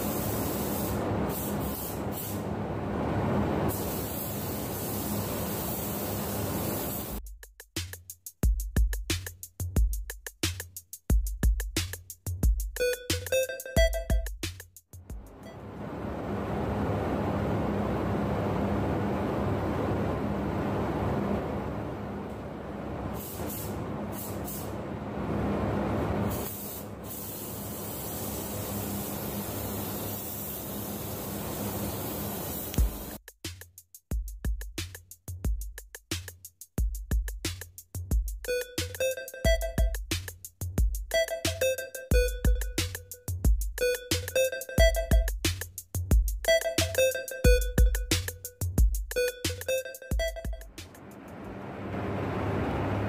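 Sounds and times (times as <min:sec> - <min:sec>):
paint spray gun hissing: 0:00.0 - 0:02.4, 0:03.7 - 0:07.2, 0:23.2 - 0:24.8, 0:26.3 - 0:33.2
ventilation rush and hum: 0:00.0 - 0:07.2, 0:15.1 - 0:33.2, 0:50.7 - 0:53.0.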